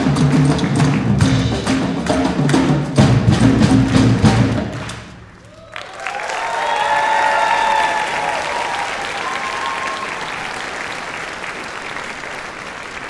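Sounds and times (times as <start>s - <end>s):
audience applauding: 0.0s - 2.7s, 3.8s - 13.0s
audience cheering and whooping: 5.4s - 13.0s.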